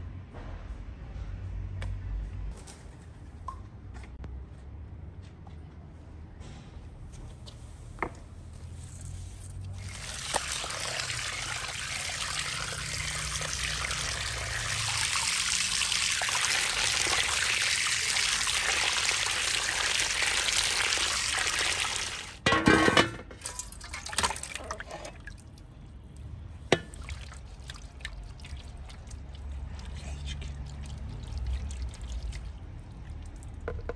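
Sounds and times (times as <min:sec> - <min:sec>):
water from hose spraying into bowl: 0:09.8 - 0:22.4.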